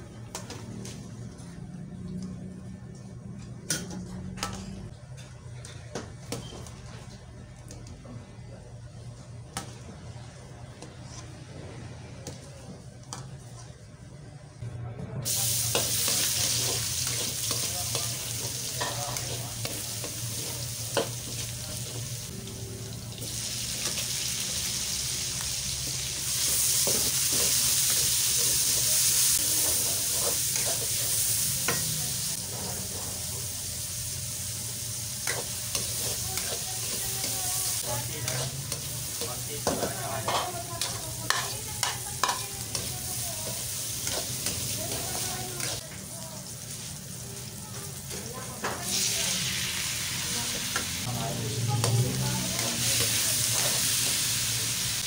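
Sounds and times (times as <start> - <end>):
vegetables sizzling in oil: 15.2 - 55.0.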